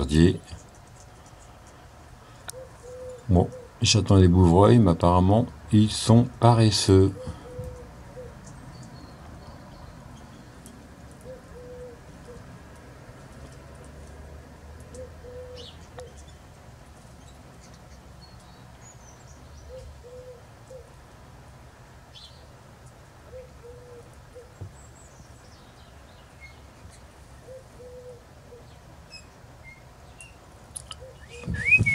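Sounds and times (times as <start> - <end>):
low hooting bird call: 2.5 - 3.8, 7.1 - 8.4, 11.2 - 12.4, 14.9 - 16.3, 19.6 - 20.9, 23.3 - 24.6, 27.4 - 31.9.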